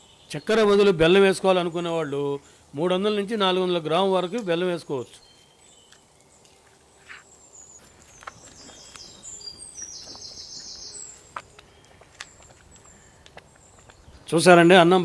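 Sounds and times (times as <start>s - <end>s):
birds chirping: 0.0s - 15.0s
bird trill: 7.0s - 14.3s.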